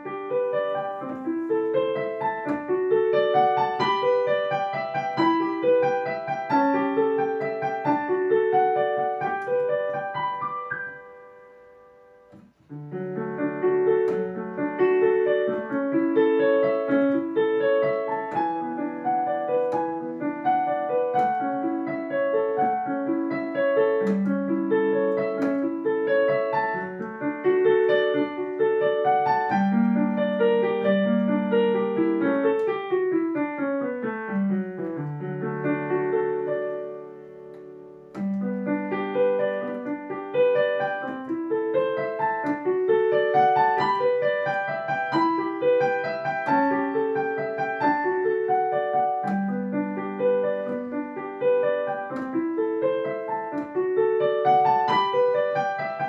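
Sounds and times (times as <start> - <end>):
digital piano piece: 0.0 - 56.0.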